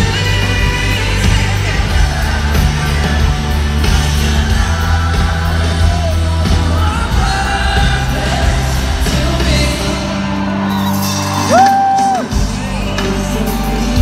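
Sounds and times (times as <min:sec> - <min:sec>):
heavy bass: 0:00.0 - 0:14.0
lead vocal singing: 0:00.0 - 0:14.0
live pop-rock band over pa: 0:00.0 - 0:14.0.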